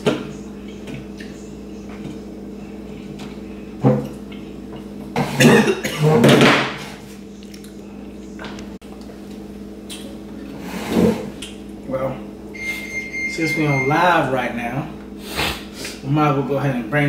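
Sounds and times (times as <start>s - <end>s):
steady low hum: 0.0s - 17.0s
chair scraping over floor: 10.5s - 11.3s.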